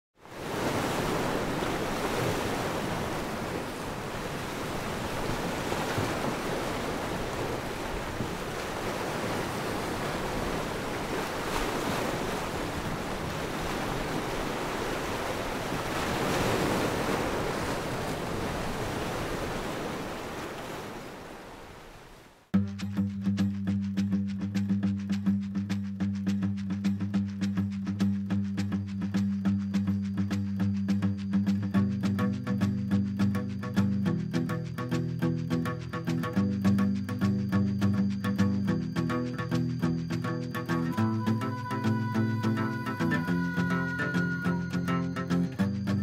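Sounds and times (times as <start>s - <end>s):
ocean waves breaking: 0.2s - 22.5s, 39.7s - 45.4s.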